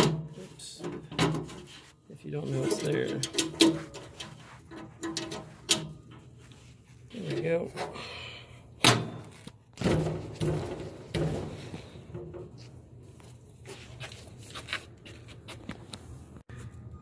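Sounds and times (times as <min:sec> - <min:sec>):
metal clanks and knocks: 0:00.0 - 0:01.7, 0:02.5 - 0:06.4, 0:08.8 - 0:12.7.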